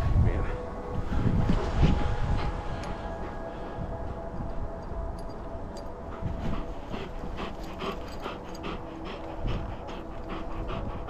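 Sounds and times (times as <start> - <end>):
dog panting: 5.0 - 11.0.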